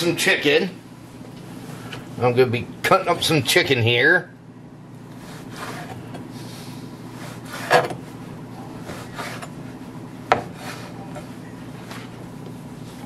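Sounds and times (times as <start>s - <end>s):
knife scraping through meat: 5.2s - 6.1s, 7.1s - 8.0s, 8.8s - 9.6s.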